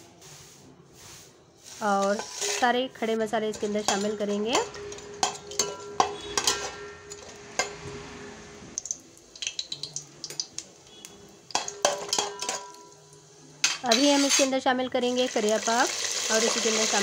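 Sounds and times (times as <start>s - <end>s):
spices sizzling in hot oil: 1.6s - 7.7s, 8.8s - 17.0s
metal spatula scraping steel pot: 1.8s - 8.3s, 11.5s - 13.0s, 13.6s - 14.7s.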